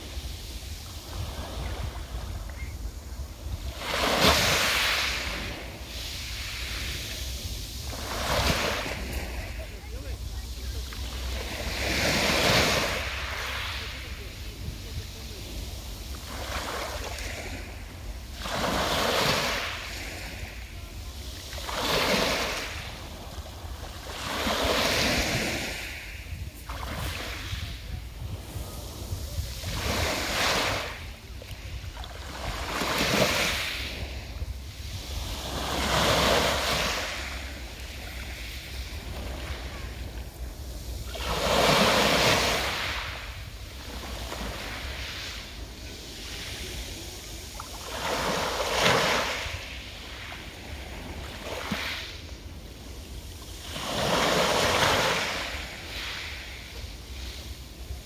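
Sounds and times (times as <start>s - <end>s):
waves breaking on pebble beach: 0.0s - 58.0s.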